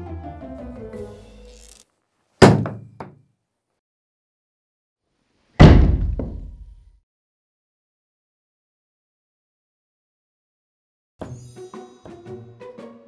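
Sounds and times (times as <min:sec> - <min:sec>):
wooden mallet knocking on board: 0:02.4 - 0:03.2.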